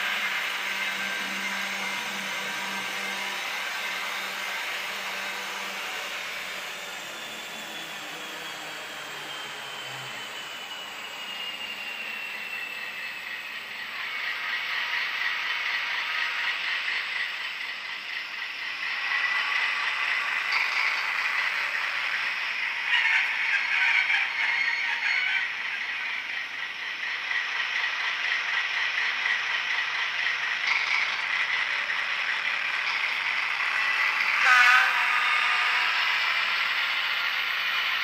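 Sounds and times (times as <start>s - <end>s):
faint high whine: 0.0s - 27.3s
model train motor whirring: 0.0s - 38.0s
wheels running on rails: 0.0s - 38.0s.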